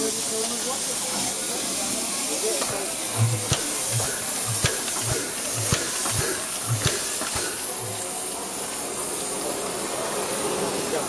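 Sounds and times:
steam hissing: 0.0s - 11.0s
sharp clicks: 2.6s - 8.0s.

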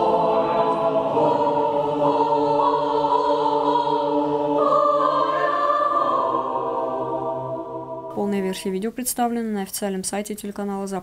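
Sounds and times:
mixed choir singing: 0.0s - 8.2s.

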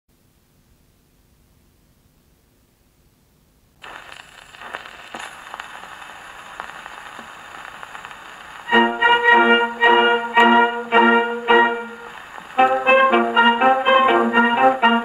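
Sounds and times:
record hiss and crackle: 0.1s - 15.0s
sharp record clicks: 3.8s - 15.0s.

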